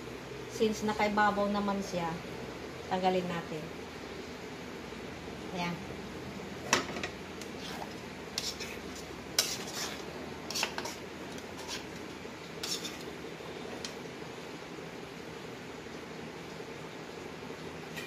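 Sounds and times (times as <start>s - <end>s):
spoon scraping a frying pan: 6.6s - 14.0s.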